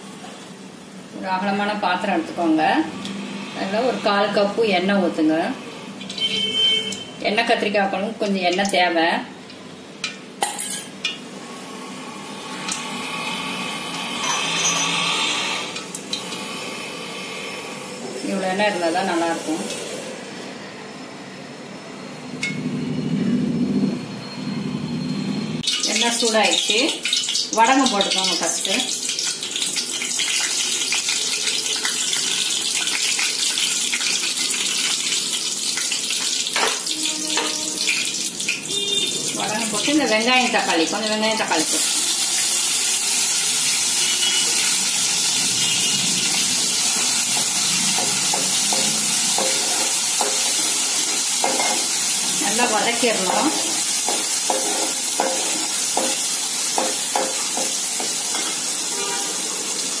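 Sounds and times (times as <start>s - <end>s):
seasoning sizzling in hot oil: 25.6s - 60.0s.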